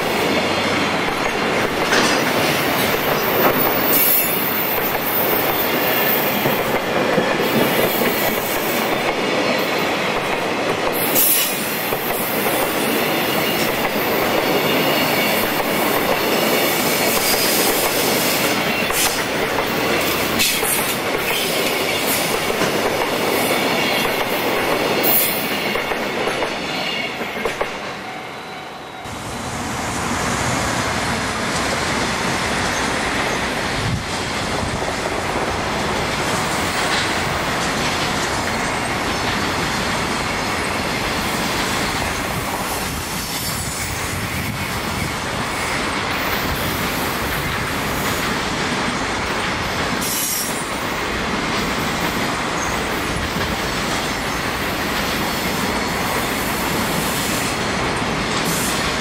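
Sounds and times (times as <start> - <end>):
train wheel noise: 0.0 - 28.3, 29.0 - 59.0
clatter over rail joints: 1.1 - 3.8.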